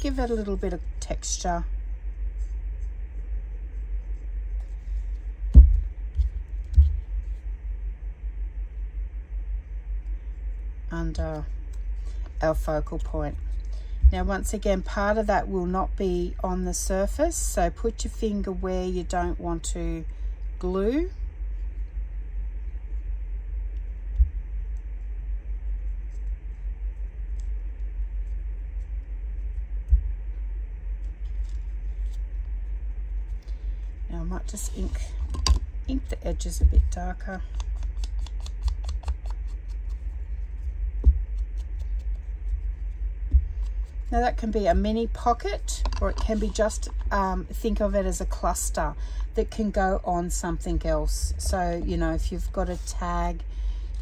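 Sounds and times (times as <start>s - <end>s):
steady low hum: 0.0s - 54.0s
steady low rumble: 0.0s - 54.0s
hands pressing paper ticks: 37.3s - 42.2s.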